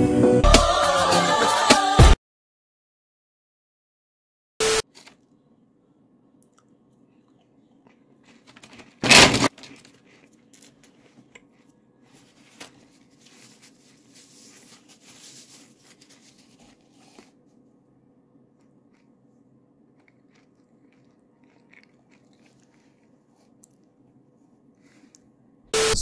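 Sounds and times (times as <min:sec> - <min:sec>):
crunching and crackling: 0:07.2 - 0:16.9, 0:19.9 - 0:24.0
loud sudden rustle: 0:09.0 - 0:09.6
faint low hum: 0:09.6 - 0:26.0.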